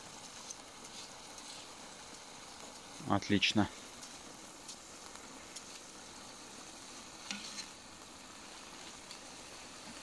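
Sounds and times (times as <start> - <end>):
faint sizzling in a pot: 0.0 - 10.0
metal skimmer scraping and tapping: 7.2 - 7.8.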